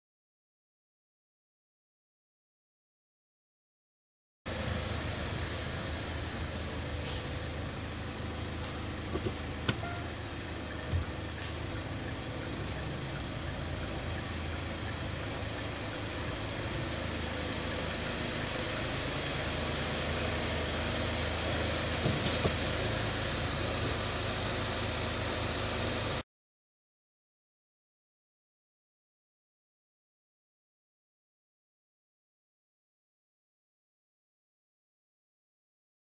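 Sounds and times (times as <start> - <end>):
diesel engine idling: 4.5 - 26.2.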